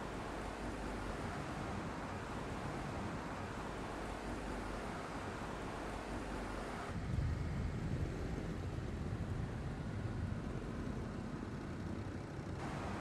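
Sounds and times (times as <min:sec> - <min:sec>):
car engine and tyre rumble: 0:00.0 - 0:13.0
wind noise: 0:06.9 - 0:09.5.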